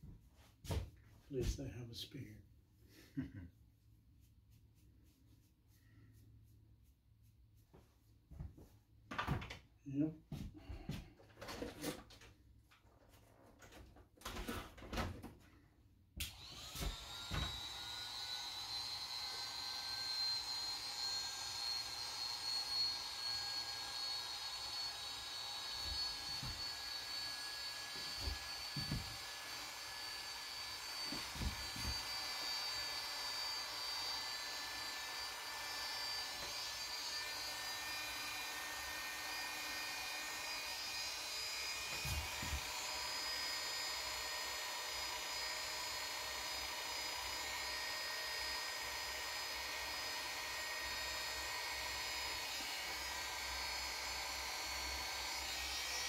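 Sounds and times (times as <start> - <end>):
electric hair clipper whine: 16.2 - 56.0.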